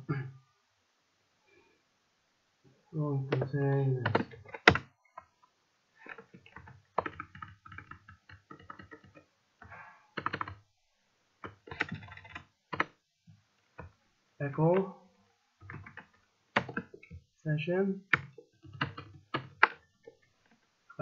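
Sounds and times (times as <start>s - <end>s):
computer keyboard typing: 3.3s - 5.3s, 6.1s - 10.6s, 11.4s - 13.0s, 15.6s - 17.0s, 18.1s - 20.2s.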